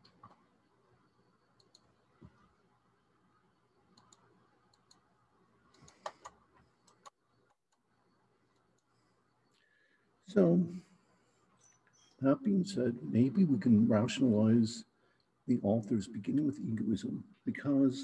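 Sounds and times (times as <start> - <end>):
computer mouse clicks: 1.5 - 2.4, 3.9 - 5.1, 5.7 - 7.8.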